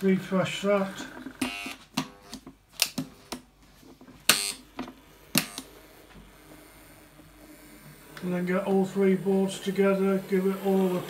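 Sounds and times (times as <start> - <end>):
sharp clicks and snaps: 1.4 - 3.5.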